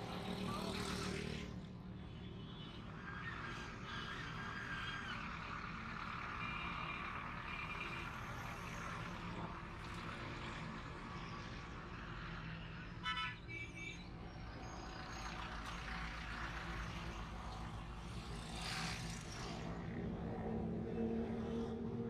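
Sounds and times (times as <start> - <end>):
motorcycle engines running: 0.0 - 1.8, 14.5 - 22.0.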